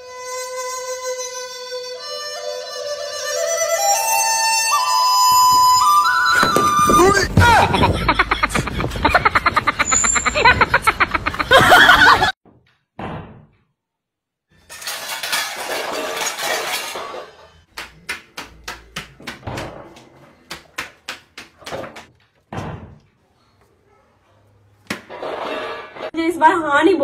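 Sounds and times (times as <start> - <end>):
sharp knocks and clatters: 12.4 - 13.7, 14.7 - 23.2.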